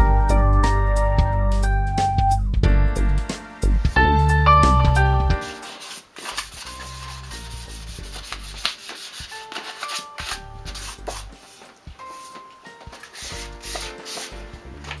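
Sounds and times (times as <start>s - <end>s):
background music: 0.0s - 15.0s
sandpaper scratching on metal wheel: 6.6s - 11.1s, 13.1s - 14.4s.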